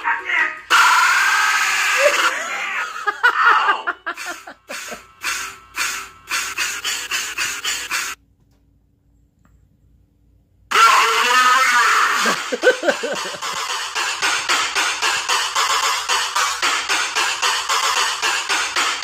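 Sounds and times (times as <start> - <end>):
voice-like sounds: 0.0 - 5.0, 10.7 - 13.5
stuttering chopped audio bursts: 4.1 - 8.2, 10.7 - 19.0.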